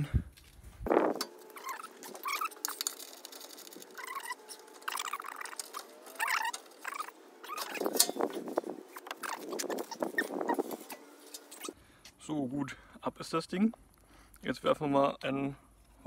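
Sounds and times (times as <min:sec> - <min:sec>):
short squeaks: 0:01.1 - 0:11.8.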